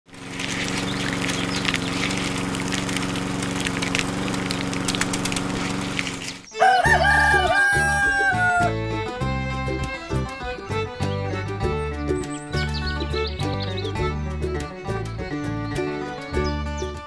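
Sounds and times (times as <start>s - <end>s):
crackling clicks of beans crushed: 0.1s - 6.5s
small motor humming: 0.1s - 11.5s
music: 6.5s - 17.0s.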